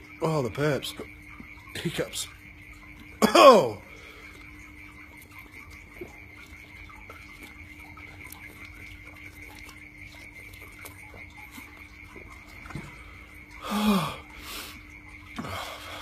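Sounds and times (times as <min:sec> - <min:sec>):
high-pitched night chorus: 0:00.0 - 0:06.2
low steady hum: 0:00.0 - 0:16.0.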